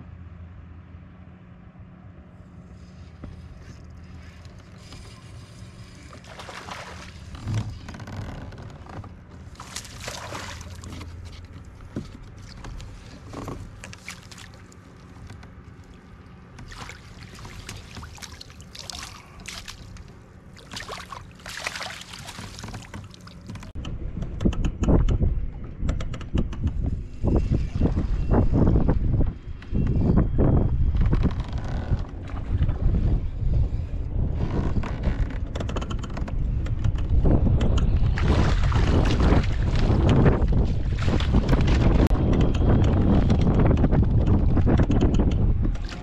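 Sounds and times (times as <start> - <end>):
fish splashing in water: 6.1 - 7.3, 9.6 - 11.0, 16.6 - 23.5
wind buffeting microphone: 23.6 - 46.0.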